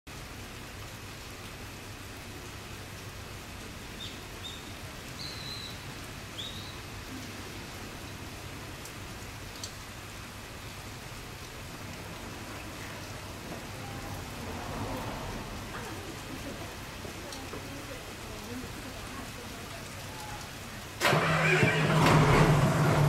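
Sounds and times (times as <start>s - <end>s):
rain falling: 0.1s - 23.0s
small bird chirping: 4.0s - 5.8s.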